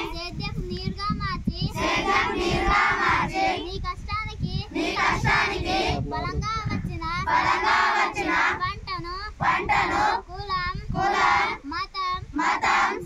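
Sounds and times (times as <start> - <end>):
crowd chanting in unison: 1.8 - 3.6, 4.8 - 6.0, 7.3 - 8.6, 9.4 - 10.2, 11.0 - 11.6, 12.4 - 13.0.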